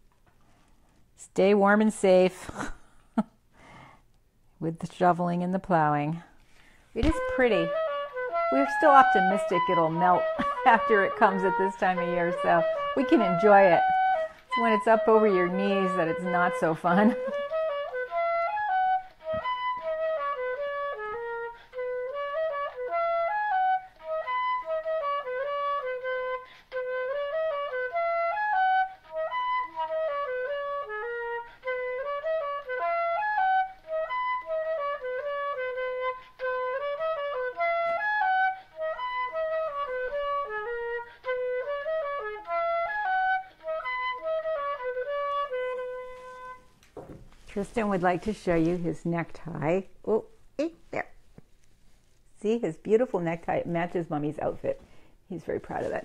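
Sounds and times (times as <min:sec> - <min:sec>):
instrumental melody: 0:06.5 - 0:48.1.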